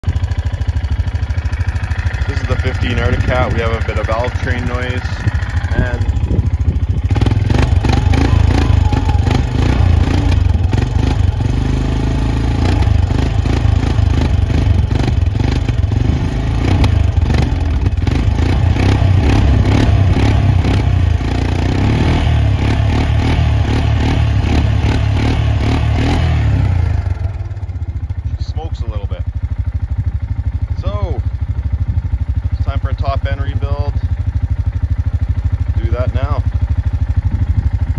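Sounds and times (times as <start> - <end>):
atv engine clattering: 0.0 - 37.9.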